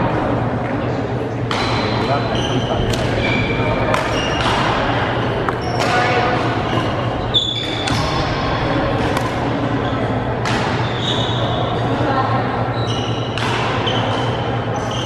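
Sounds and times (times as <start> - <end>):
racket hitting shuttlecock: 1.5 - 2.1, 2.8 - 9.6, 10.4 - 11.0, 13.4 - 14.4
shoes squeaking on court: 1.6 - 11.9, 12.7 - 15.0.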